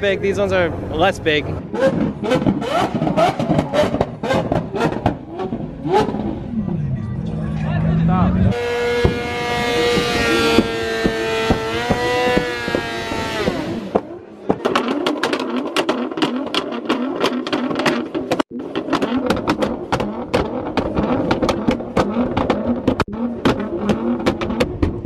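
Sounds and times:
motorcycle engine high revs: 1.6 - 6.7, 8.4 - 25.0.

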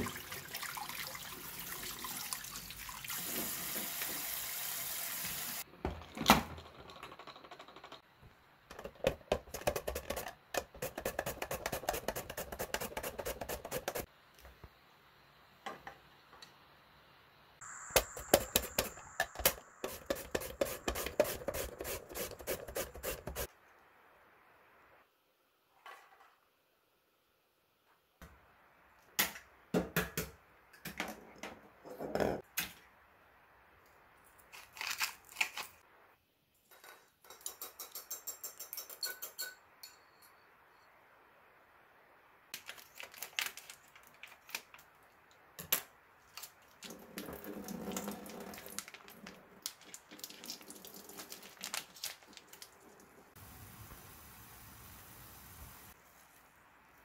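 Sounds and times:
wet squeezing sounds: 46.2 - 53.3.

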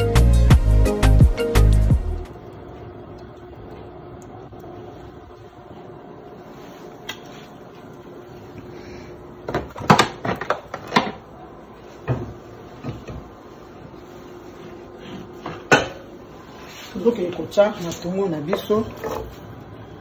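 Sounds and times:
steady low hum: 0.4 - 20.0
cookware knocks and clatter: 15.5 - 16.0.

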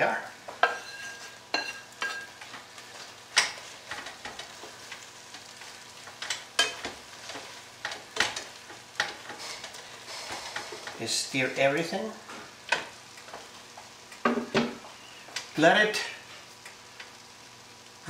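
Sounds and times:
shrimp sizzling in skillet: 0.0 - 18.0
spatula scraping pan: 0.6 - 11.0.

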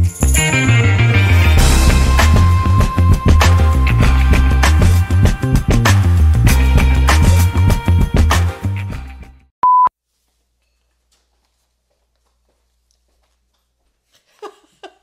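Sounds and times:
upbeat music: 0.0 - 9.4
short electronic beep: 9.6 - 9.9.

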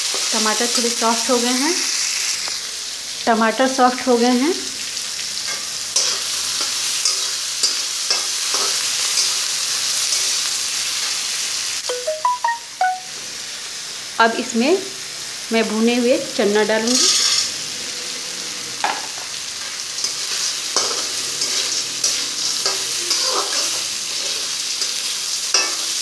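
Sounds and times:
vegetables sizzling in oil: 0.0 - 26.0
short high tones: 11.9 - 13.2
spatula scraping a steel pan: 20.8 - 24.9.

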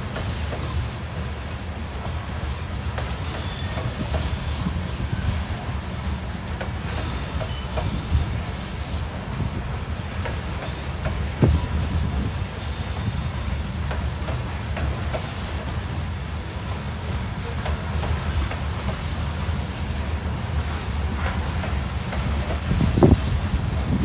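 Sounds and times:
steel wheels rumbling on rail: 0.0 - 24.0
train wheel clicks: 0.0 - 24.0
high wheel squeals: 10.5 - 13.4, 22.7 - 24.0.

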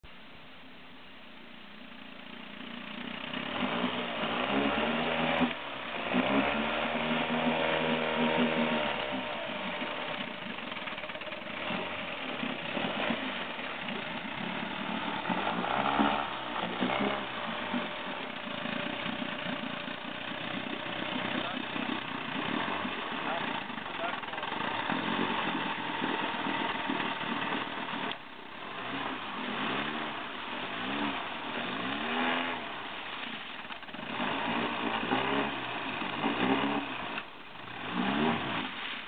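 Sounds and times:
outboard motor revving: 2.4 - 39.0.

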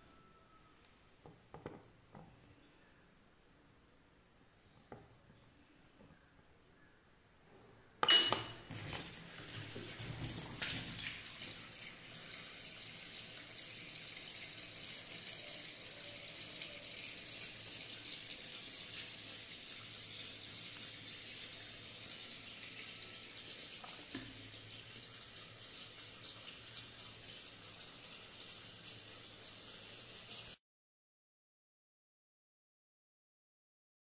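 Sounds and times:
water running into washing machine: 8.7 - 30.6.

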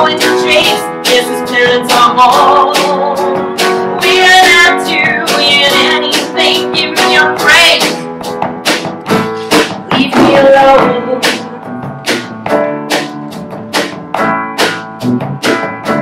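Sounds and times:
drum kit beat: 0.0 - 16.0
electric bass: 8.0 - 16.0.

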